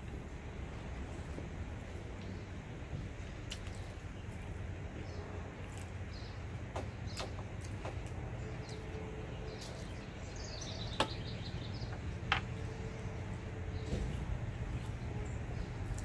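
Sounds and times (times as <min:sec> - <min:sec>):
steady low hum: 0:00.0 - 0:16.0
bird chirps: 0:08.4 - 0:16.0.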